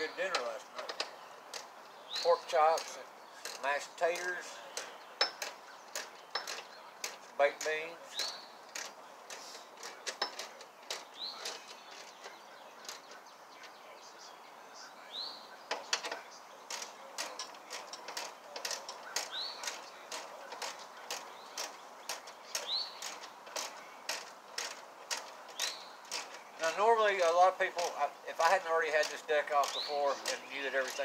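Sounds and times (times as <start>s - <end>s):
bird chirping: 0.0s - 31.0s.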